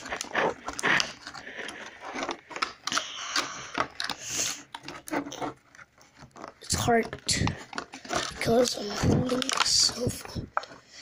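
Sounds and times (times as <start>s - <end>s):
plastic and cardboard crackling: 0.0s - 11.0s.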